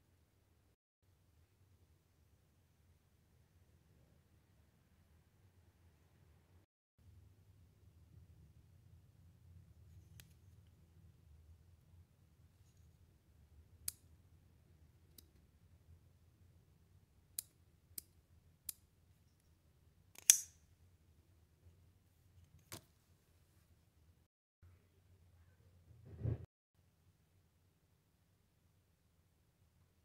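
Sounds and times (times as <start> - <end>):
knife blade snapping open: 20.2 - 20.5.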